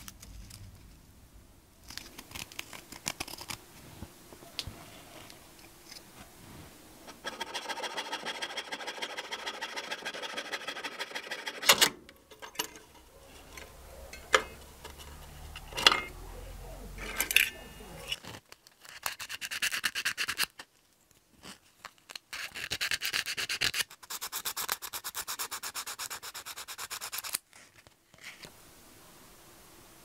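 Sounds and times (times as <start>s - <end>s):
fret saw rasping through metal: 7.1s - 16.3s.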